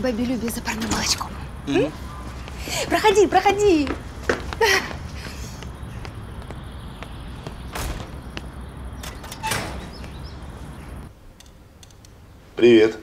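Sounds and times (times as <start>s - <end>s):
outdoor background noise: 0.0s - 13.0s
door creaking: 9.0s - 10.2s.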